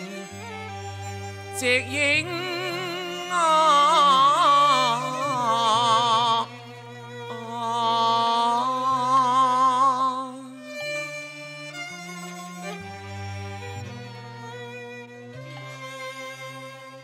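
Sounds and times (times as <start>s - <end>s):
traditional ensemble playing: 0.0s - 17.0s
opera singing with vibrato: 1.5s - 10.6s.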